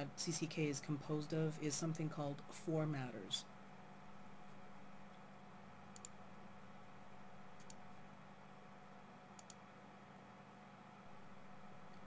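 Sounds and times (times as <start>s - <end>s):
faint steady hum: 0.0s - 12.0s
computer mouse double clicks: 9.4s - 9.6s.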